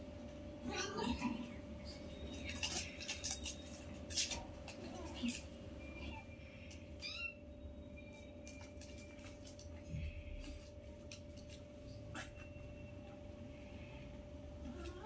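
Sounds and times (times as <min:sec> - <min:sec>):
kittens tapping and scuffling: 0:01.9 - 0:07.3, 0:08.0 - 0:12.6
kittens mewing: 0:04.4 - 0:07.5, 0:14.6 - 0:15.0.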